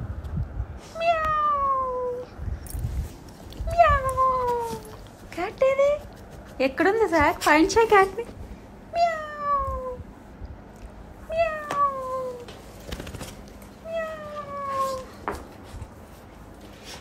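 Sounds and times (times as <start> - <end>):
person imitating cat meow: 1.0 - 2.2, 3.6 - 4.9, 9.0 - 10.0.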